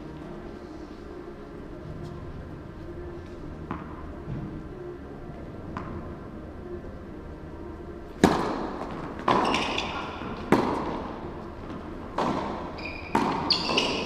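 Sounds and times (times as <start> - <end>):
tennis ball bouncing: 3.6 - 4.5, 5.7 - 6.1, 8.1 - 14.0
racket hitting tennis ball: 8.1 - 14.0.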